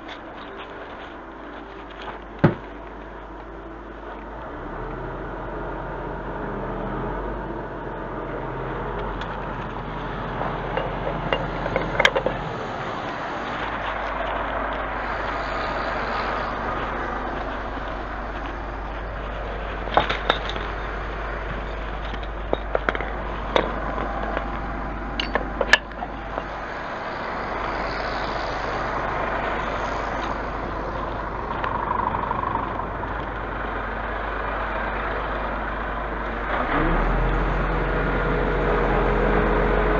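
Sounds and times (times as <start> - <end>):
truck engine running: 0.0 - 39.9
sharp clicks and knocks: 10.7 - 12.5, 21.4 - 26.6.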